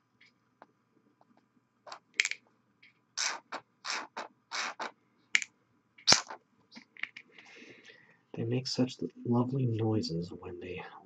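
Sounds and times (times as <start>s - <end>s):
squeeze bottle sputtering air: 3.2s - 5.0s, 6.1s - 6.4s.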